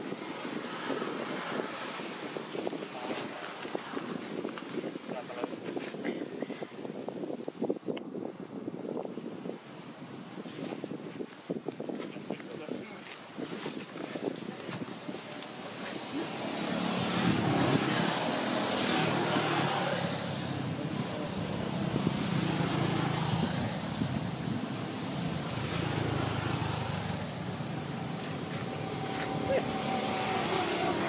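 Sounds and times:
engine drone: 15.3s - 31.0s.

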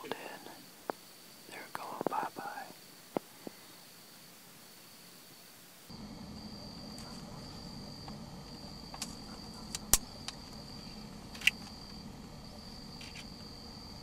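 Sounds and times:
high insect trill: 0.0s - 14.0s
low hum: 5.9s - 14.0s.

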